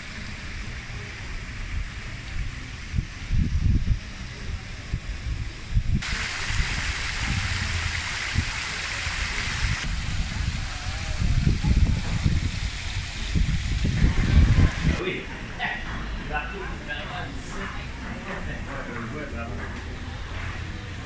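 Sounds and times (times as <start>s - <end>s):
fountain water splashing: 0.0s - 3.3s, 4.0s - 15.0s
low rumbling buffeting: 0.0s - 18.7s.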